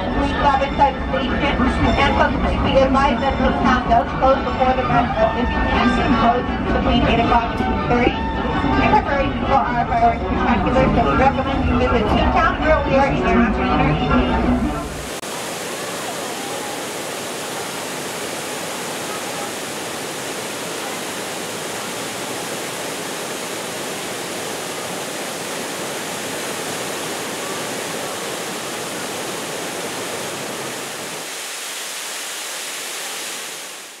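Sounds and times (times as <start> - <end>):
waterfall pouring onto rocks: 15.1 - 33.2.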